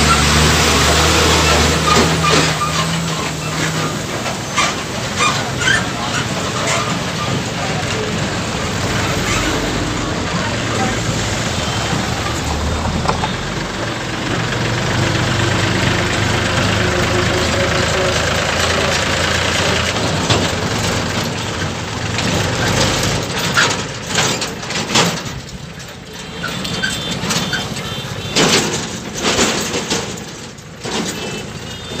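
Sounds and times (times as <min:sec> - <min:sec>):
passing vehicles: 0:00.0 - 0:32.0
tractor diesel engine humming: 0:00.0 - 0:32.0.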